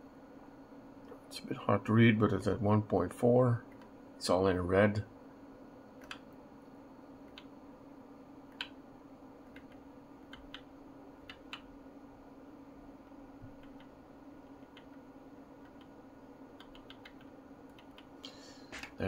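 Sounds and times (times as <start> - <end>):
steady low hum: 0.0 - 19.0
keyboard or mouse clicks: 6.0 - 6.2, 8.5 - 8.8, 9.5 - 11.7, 13.6 - 13.9, 15.6 - 15.9, 16.6 - 18.3.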